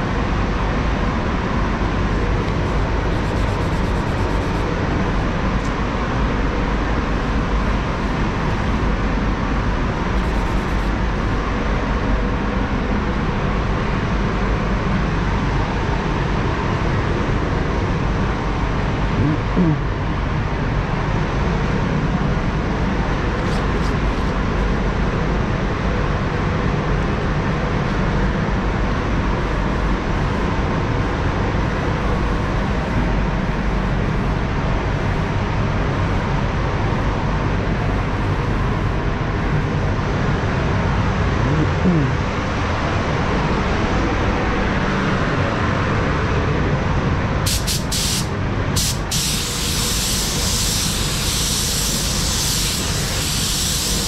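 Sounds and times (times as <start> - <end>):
ventilation air rushing: 0.0 - 54.0
compressed air gun hissing: 2.6 - 4.7, 47.5 - 54.0.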